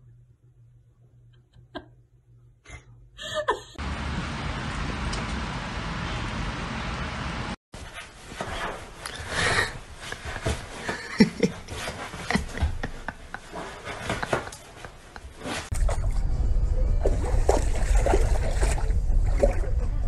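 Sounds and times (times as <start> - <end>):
loud steady rush of noise: 3.8 - 7.6.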